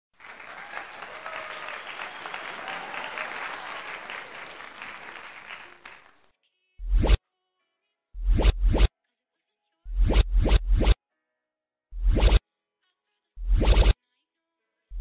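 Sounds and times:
hands clapping: 0:00.2 - 0:06.4.

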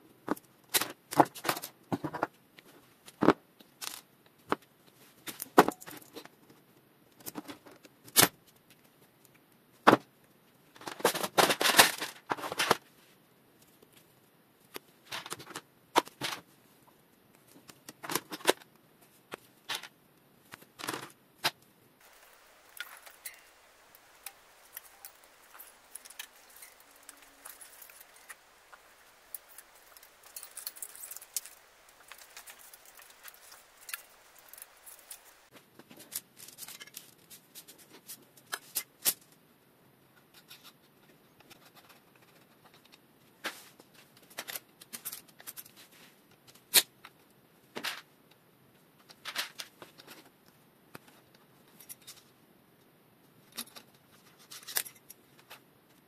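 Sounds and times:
plastic housing rustling and crackling: 0:20.6 - 0:38.9.

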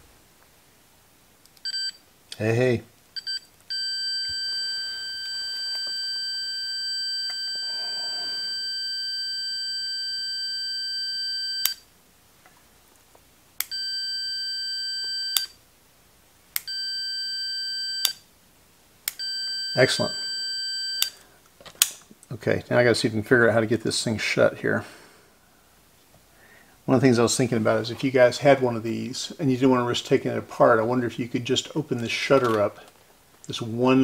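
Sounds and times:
multimeter continuity beep: 0:01.6 - 0:02.0, 0:03.2 - 0:11.8, 0:13.6 - 0:15.6, 0:16.6 - 0:18.2, 0:19.1 - 0:21.2.

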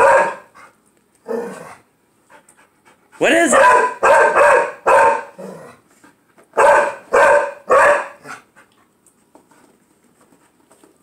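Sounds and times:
dog barking: 0:00.0 - 0:00.5, 0:03.5 - 0:05.4, 0:06.6 - 0:08.3.

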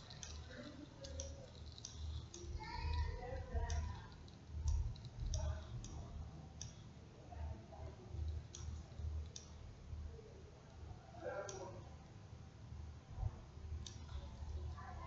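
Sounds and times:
computer mouse clicks: 0:00.0 - 0:06.9, 0:08.2 - 0:09.6, 0:11.4 - 0:11.8, 0:13.8 - 0:14.7.

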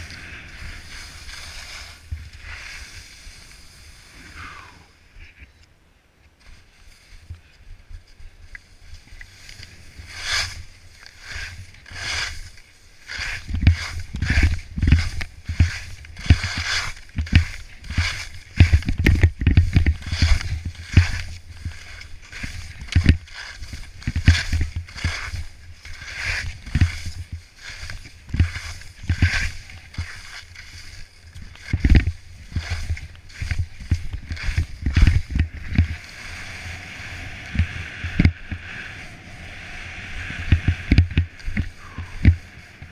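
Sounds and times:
skis scraping on snow: 0:00.0 - 0:04.9, 0:06.4 - 0:42.9
heavy low thumps of skis: 0:10.2 - 0:30.9, 0:31.5 - 0:38.9, 0:40.0 - 0:42.9.

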